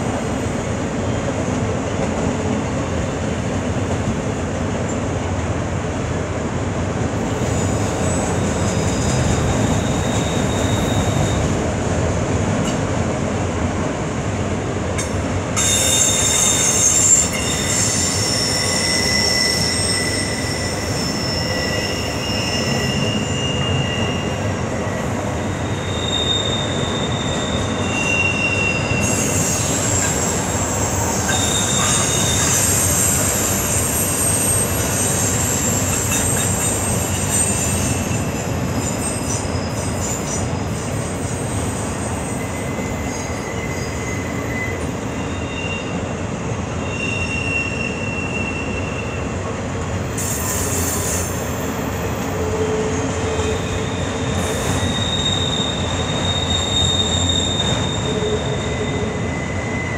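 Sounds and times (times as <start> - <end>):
train wheels rumbling on rails: 0.0 - 59.9
high-pitched wheel squeal: 8.0 - 11.5, 15.6 - 46.0, 46.8 - 49.3, 50.1 - 59.9.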